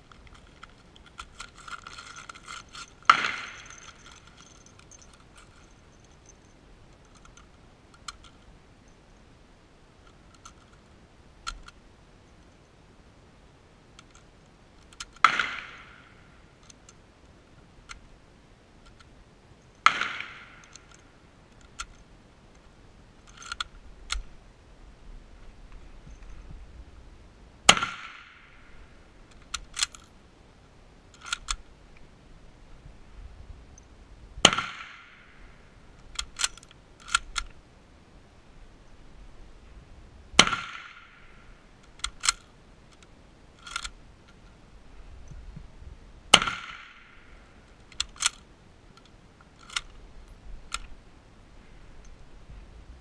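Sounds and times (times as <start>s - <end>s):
rifle bolt clacking: 0.1s - 8.4s, 14.8s - 16.0s, 19.8s - 22.0s, 23.3s - 24.3s, 29.3s - 30.1s, 31.2s - 31.6s, 36.0s - 37.5s, 41.8s - 44.4s, 46.3s - 47.2s, 47.8s - 48.4s, 49.0s - 50.0s
rifle shots echoing: 3.0s - 3.9s, 40.4s - 41.4s, 46.3s - 47.3s.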